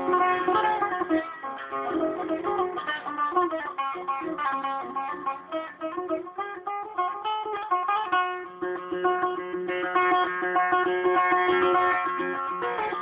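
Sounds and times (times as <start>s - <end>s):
plucked lute melody: 0.0s - 13.0s.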